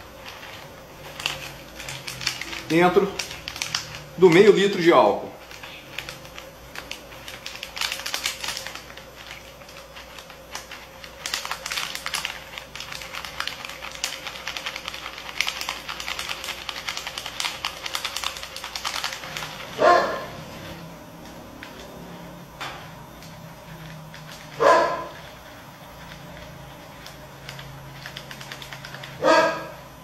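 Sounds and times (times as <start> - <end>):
plastic packet crinkling: 0.0 - 22.4, 23.0 - 29.8
dog barking: 19.8 - 20.4, 24.6 - 25.1, 29.2 - 29.8.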